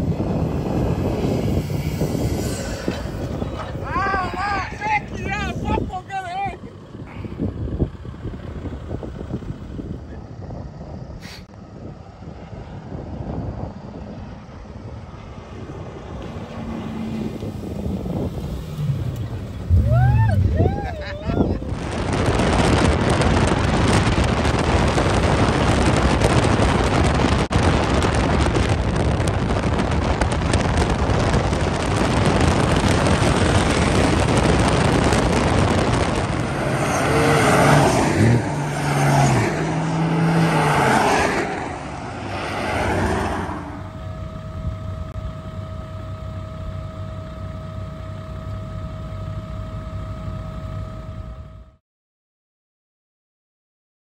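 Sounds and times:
wind on microphone: 0.0 - 6.0, 6.9 - 45.2
vehicle engine revving: 15.4 - 44.9
steady two-pitch hum: 43.6 - 51.8.

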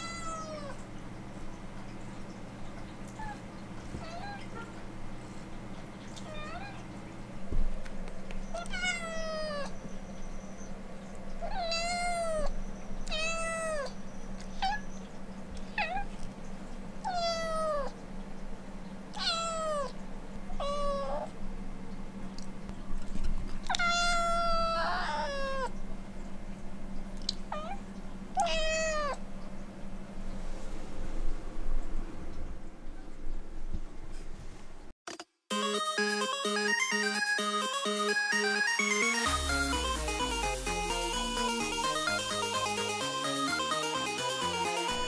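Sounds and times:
cat meowing: 0.0 - 0.8, 4.0 - 4.8, 6.2 - 6.8, 8.5 - 9.8, 11.4 - 14.9, 15.7 - 16.2, 17.0 - 18.0, 19.1 - 20.0, 20.6 - 21.3, 23.7 - 25.7, 27.5 - 27.8, 28.4 - 29.2.

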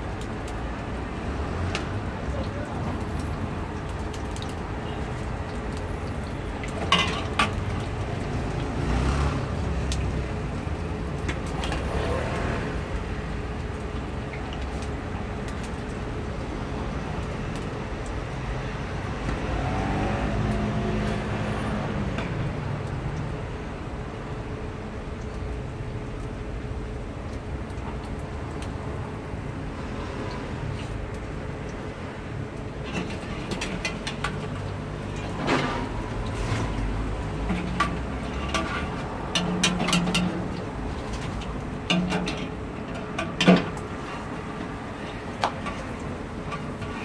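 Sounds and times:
cars driving by: 0.0 - 13.8, 16.1 - 26.2, 28.4 - 47.0.

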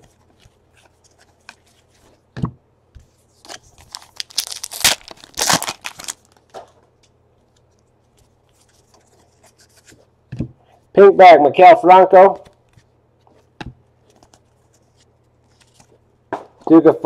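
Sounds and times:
wrapper tearing and crinkling: 3.5 - 6.4.

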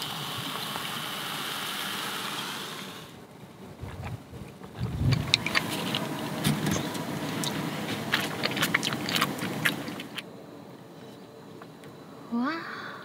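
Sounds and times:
sandwich cooker hissing and crackling: 0.0 - 3.3, 5.2 - 10.2.

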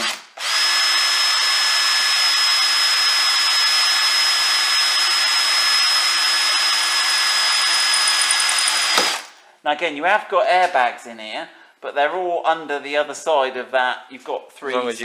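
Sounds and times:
cordless drill whining: 0.0 - 9.3.

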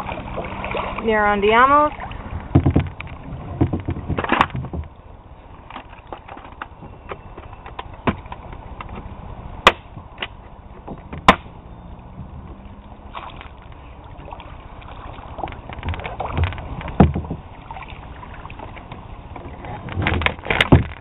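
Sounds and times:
quiet water: 0.0 - 21.0
knocks and clicks on a kayak: 2.4 - 5.0, 15.4 - 17.5, 18.6 - 21.0.

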